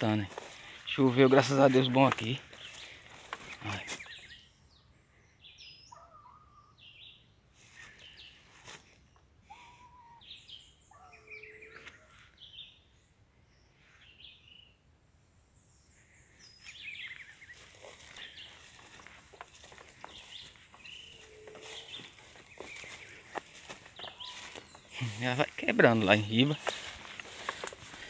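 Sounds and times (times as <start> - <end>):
rustles of brush: 0.0 - 4.3, 7.6 - 9.0, 16.7 - 28.0
birds chirping and whistling: 0.0 - 12.9, 15.6 - 28.0
low bird hoot: 5.9 - 6.8, 9.5 - 12.3, 20.8 - 23.1.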